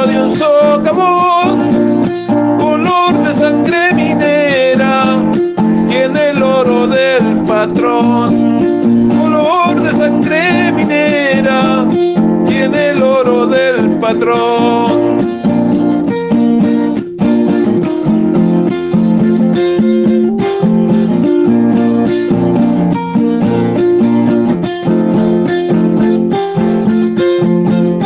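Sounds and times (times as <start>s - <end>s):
person singing: 0.0s - 15.9s
strummed acoustic guitar: 0.0s - 28.0s.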